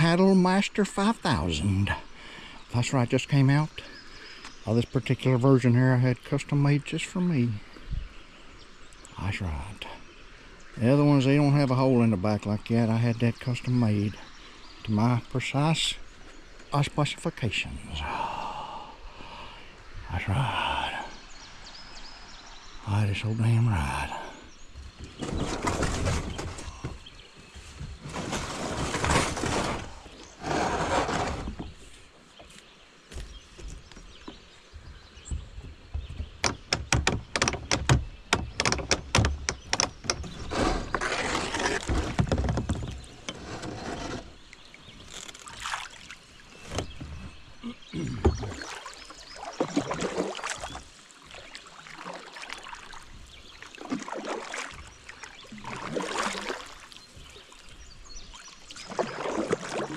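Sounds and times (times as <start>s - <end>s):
kayak scraping on bank: 24.0s - 47.6s, 48.2s - 59.9s
paddle splashing in water: 35.2s - 47.4s, 48.2s - 59.9s
clicks and knocks: 36.1s - 40.7s.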